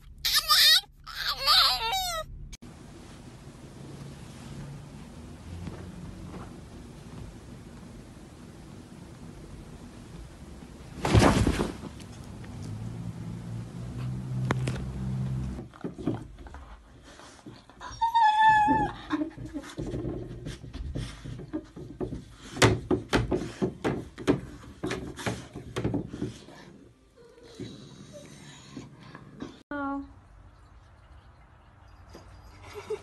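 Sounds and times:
high-pitched animal call: 0.2s - 2.3s
cat landing thump: 10.9s - 12.2s.

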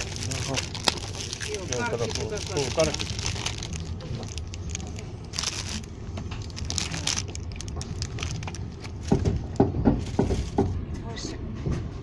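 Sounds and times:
plastic wrappers crinkling: 0.0s - 10.6s
train rumbling: 0.0s - 12.0s.

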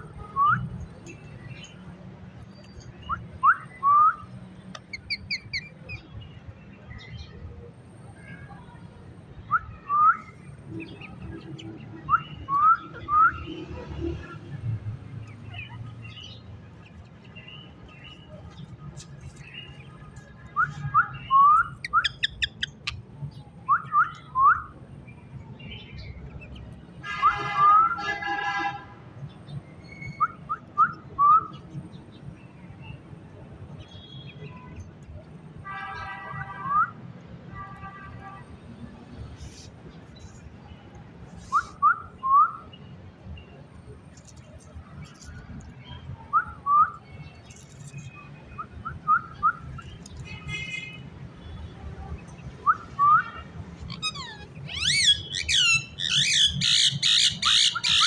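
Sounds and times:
parakeets whistling: 21.1s - 22.9s, 53.9s - 58.0s
parakeet harsh screeching calls: 53.9s - 58.0s.

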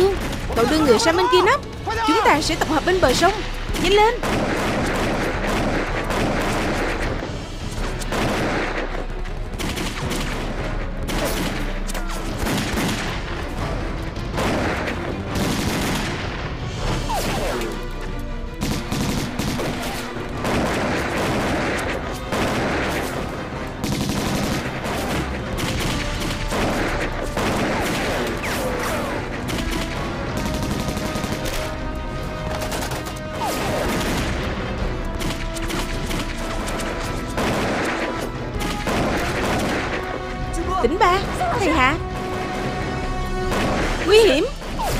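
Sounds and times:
machine gun firing: 3.7s - 7.2s, 8.1s - 8.9s, 9.5s - 11.8s, 14.3s - 16.3s, 18.6s - 31.9s, 32.5s - 40.2s
rifle gunfire: 4.2s - 7.2s, 8.1s - 11.7s, 14.4s - 16.3s, 18.6s - 31.8s, 35.1s - 40.1s.

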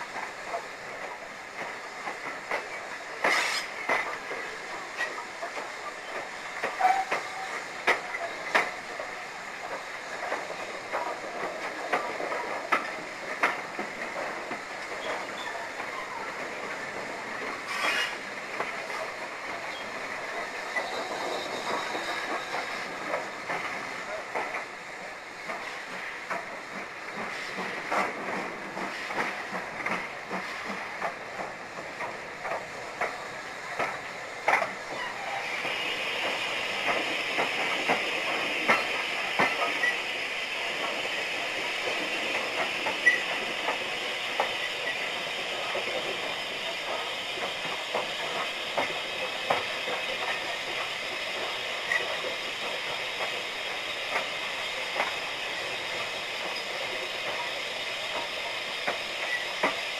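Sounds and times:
steady hiss: 0.0s - 59.9s
train rumble: 0.0s - 59.9s
train wheels clicking over rail joints: 0.0s - 59.9s.

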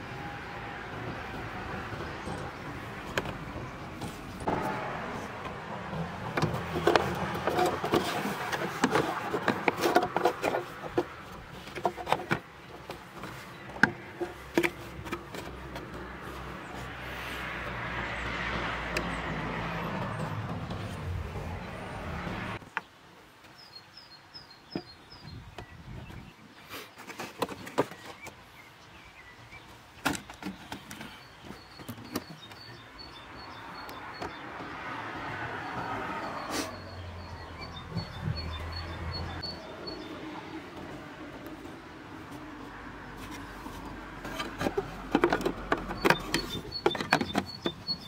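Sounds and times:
plastic knocks clicks and rattles: 6.2s - 16.0s, 43.8s - 48.0s.

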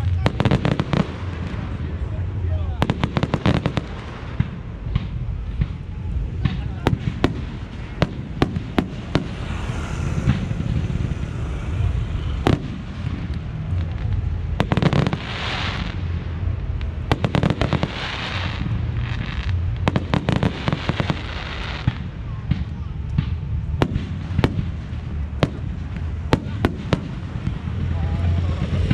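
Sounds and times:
firework bangs: 0.0s - 28.9s
firework fizzing hiss: 6.3s - 16.2s.

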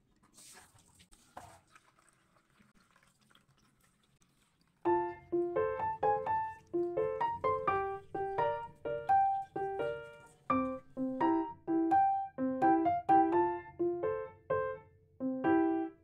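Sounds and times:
light piano melody: 4.9s - 16.0s.

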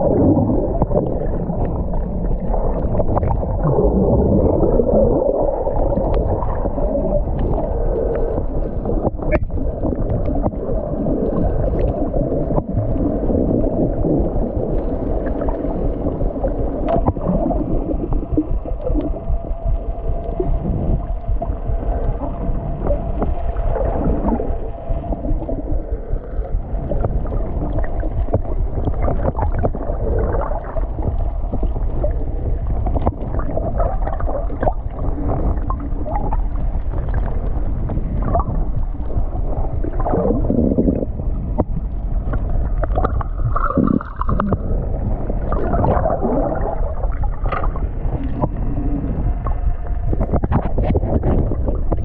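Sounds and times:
muffled underwater sea water: 0.0s - 52.0s
water gurgles: 0.0s - 52.0s.

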